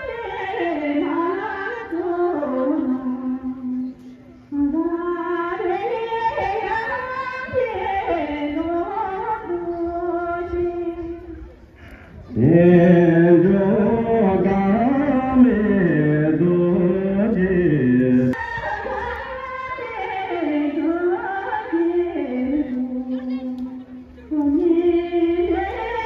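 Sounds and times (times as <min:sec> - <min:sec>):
low voice singing: 0:00.0 - 0:26.0
high voice singing: 0:12.2 - 0:26.0.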